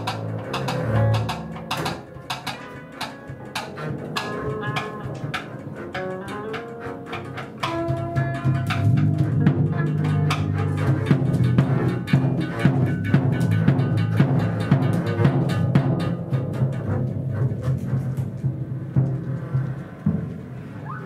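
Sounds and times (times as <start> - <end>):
bowed double bass: 0.0 - 21.0
percussive hits: 0.0 - 21.0.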